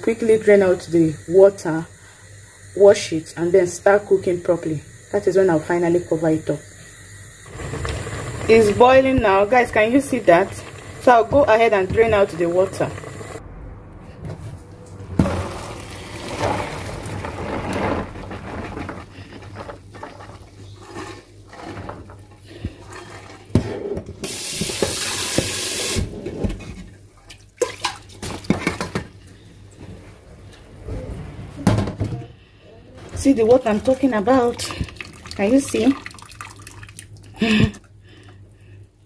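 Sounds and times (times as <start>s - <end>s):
water running down drain: 0.0s - 13.4s, 15.2s - 23.4s, 24.2s - 26.1s, 33.6s - 37.7s
water pouring into colander: 7.4s - 13.4s, 15.2s - 20.4s, 33.9s - 37.3s.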